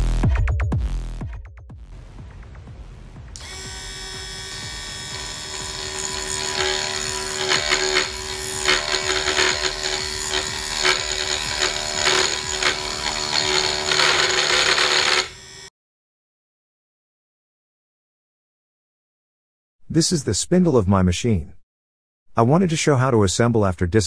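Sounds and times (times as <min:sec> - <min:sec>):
crackling metal cutting noise: 0:03.4 - 0:15.7
spindle motor whining: 0:03.4 - 0:15.7.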